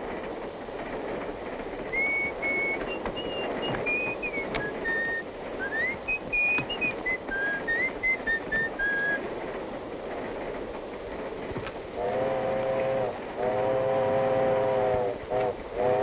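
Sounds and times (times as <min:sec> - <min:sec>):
train rumbling: 0:00.0 - 0:16.0
person whistling a tune: 0:01.9 - 0:09.2
steam train whistle: 0:01.9 - 0:09.2, 0:12.0 - 0:16.0.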